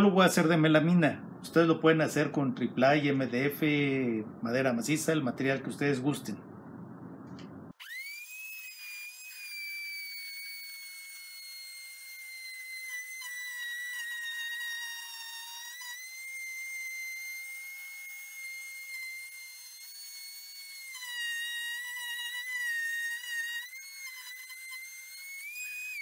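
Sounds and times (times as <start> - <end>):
router motor whining: 7.7 - 26.0.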